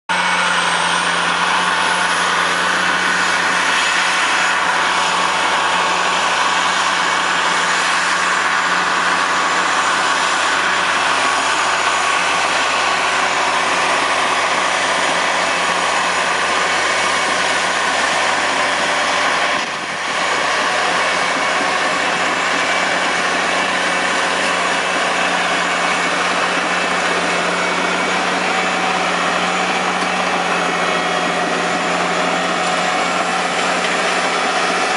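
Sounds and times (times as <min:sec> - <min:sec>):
diesel engine running under load: 0:00.1 - 0:34.9.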